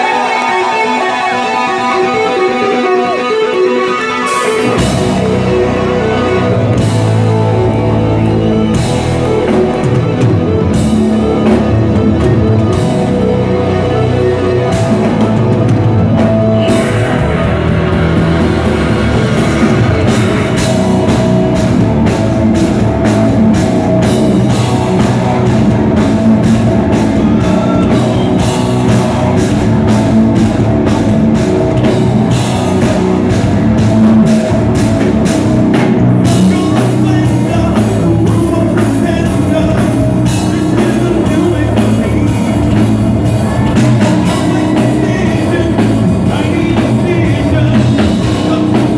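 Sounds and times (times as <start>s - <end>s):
distorted electric guitar: 0.0s - 48.9s
drum kit: 0.0s - 48.9s
keyboards: 0.0s - 48.9s
man singing: 36.2s - 48.9s.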